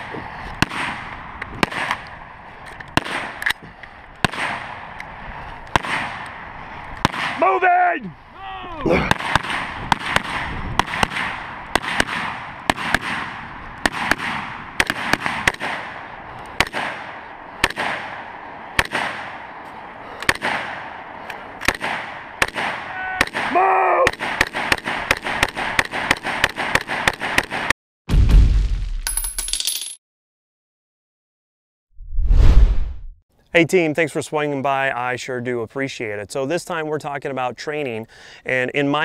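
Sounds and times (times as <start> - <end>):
rifle shots with echo: 0.6 - 2.4, 3.0 - 3.5, 4.2 - 5.0, 5.7 - 7.4, 9.1 - 19.6, 20.2 - 23.5, 24.1 - 27.7.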